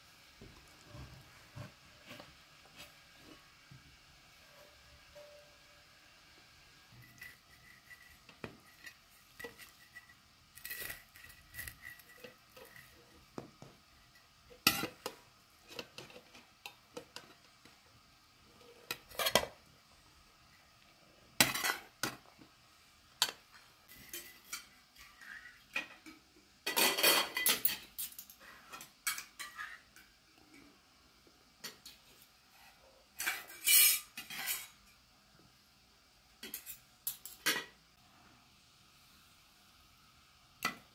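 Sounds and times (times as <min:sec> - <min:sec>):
metal spoon clinking on trays: 0:36.4 - 0:37.8.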